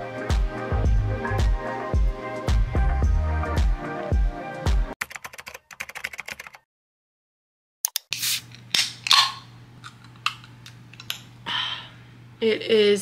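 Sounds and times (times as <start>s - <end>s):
background music with a beat: 0.0s - 5.0s
typing on a laptop keyboard: 5.0s - 6.6s.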